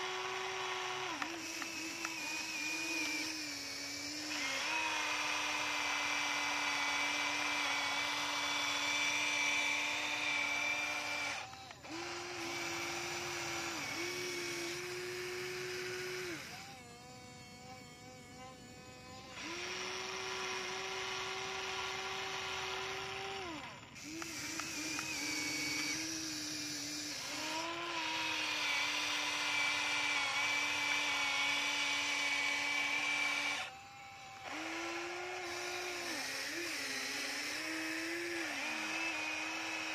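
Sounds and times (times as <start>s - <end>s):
electric motors whining: 0.0s - 39.9s.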